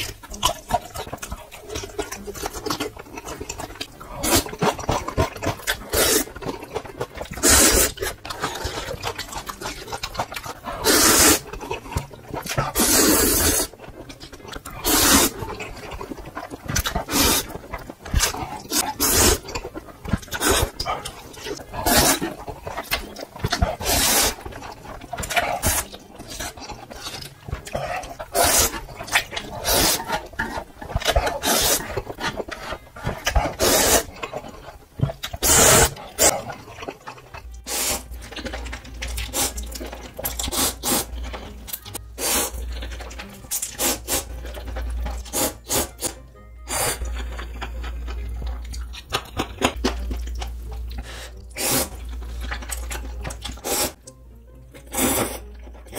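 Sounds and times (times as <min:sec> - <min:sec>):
slurping noodles: 0:00.0 - 0:54.1, 0:54.7 - 0:55.9.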